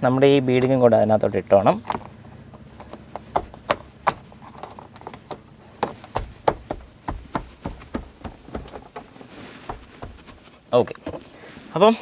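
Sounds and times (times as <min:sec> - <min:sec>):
hand tapping plastic trim: 0:02.8 - 0:09.1, 0:09.7 - 0:10.4.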